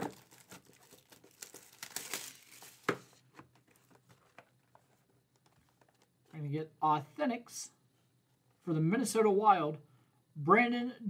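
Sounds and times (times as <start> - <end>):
plastic wrapping crinkling and tearing: 0.0 - 6.1.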